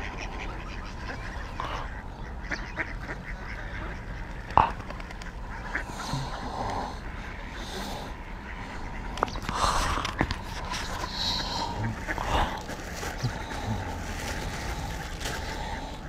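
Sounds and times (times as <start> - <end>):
ducks quacking: 0.0 - 16.0.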